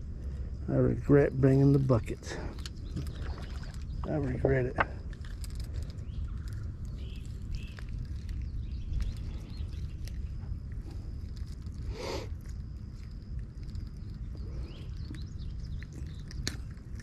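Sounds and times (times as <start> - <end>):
wind rumbling on microphone: 0.0 - 17.0
bird chirps: 2.6 - 4.6, 5.9 - 10.2, 13.8 - 17.0.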